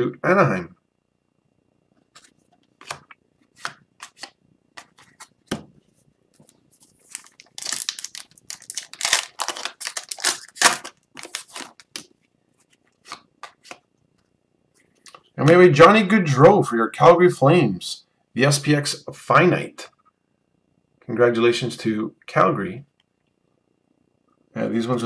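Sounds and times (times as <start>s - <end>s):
foil wrapper crinkling and tearing: 6.9s - 12.1s.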